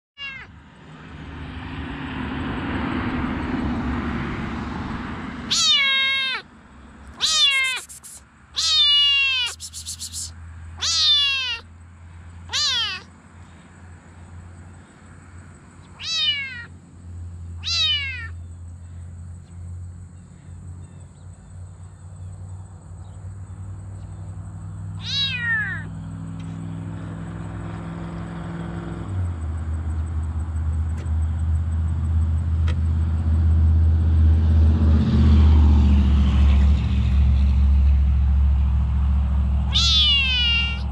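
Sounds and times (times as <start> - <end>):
kitten meowing: 0.2 - 0.5, 5.5 - 6.4, 7.2 - 11.7, 12.5 - 13.1, 16.0 - 16.7, 17.6 - 18.4, 25.0 - 25.9, 39.7 - 40.9.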